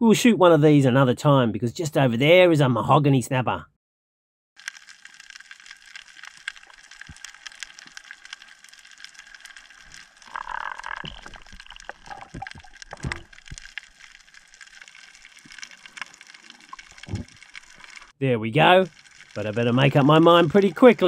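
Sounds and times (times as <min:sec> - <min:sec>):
dense crackle of underwater clicks: 0:04.6 - 0:21.0
rush of water: 0:10.2 - 0:18.1.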